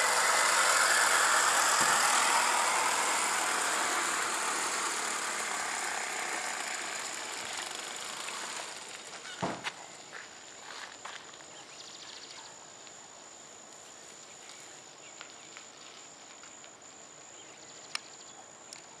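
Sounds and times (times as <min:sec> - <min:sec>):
high-pitched insect drone: 0:00.0 - 0:09.2.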